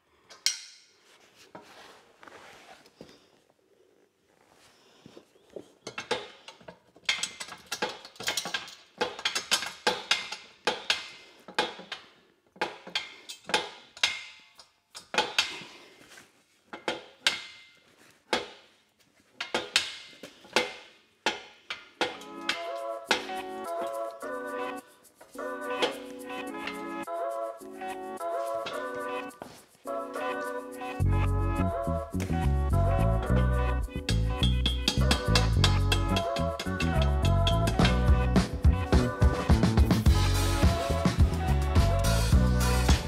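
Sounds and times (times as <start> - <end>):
metallic clinks and knocks: 5.8 - 15.6, 34.1 - 38.0.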